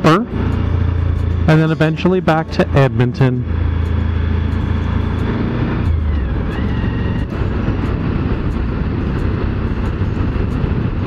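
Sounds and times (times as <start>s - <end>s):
motorcycle engine running: 0.0s - 11.0s
wind rushing over microphone: 3.4s - 11.0s.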